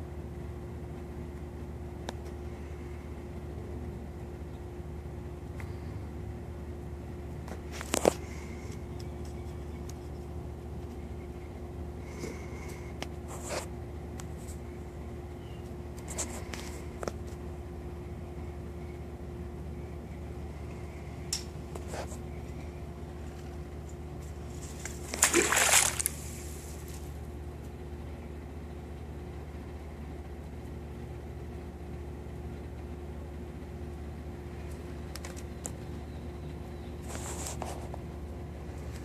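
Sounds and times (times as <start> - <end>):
steady low hum: 0.0 - 39.0
water splash: 24.7 - 26.6.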